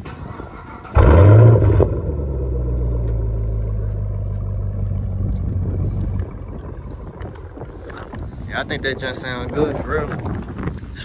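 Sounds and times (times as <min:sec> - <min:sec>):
car engine starting and idling: 0:00.0 - 0:08.4.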